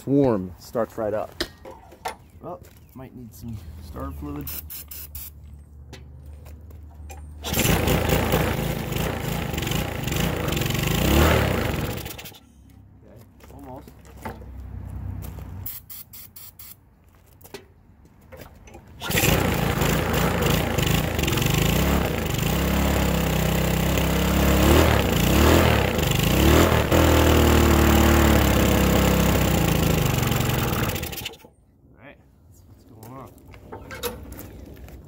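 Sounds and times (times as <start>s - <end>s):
small gasoline engine running: 7.4s - 12.4s, 19.0s - 31.5s.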